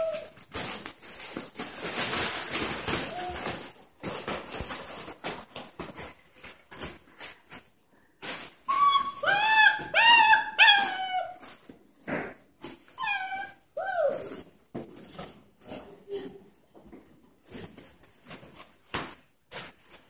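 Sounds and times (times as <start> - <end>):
puppy whining: 0.0 - 0.4, 8.6 - 11.6, 12.9 - 14.5.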